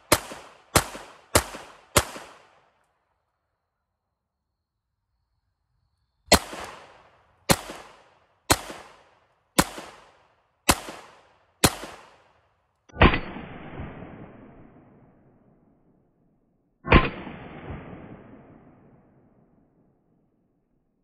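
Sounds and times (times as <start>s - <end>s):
pistol shots with echo: 0.0s - 2.7s, 6.3s - 14.4s.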